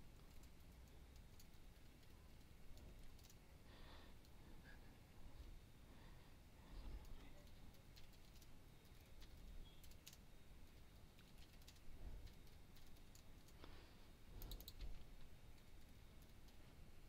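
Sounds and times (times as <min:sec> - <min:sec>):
typing on computer keyboard: 0:00.1 - 0:03.4, 0:06.9 - 0:13.6, 0:14.4 - 0:16.6.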